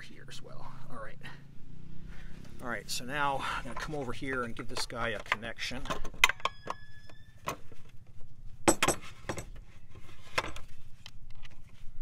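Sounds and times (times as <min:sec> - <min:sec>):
brief ringing tone: 0:06.5 - 0:07.4.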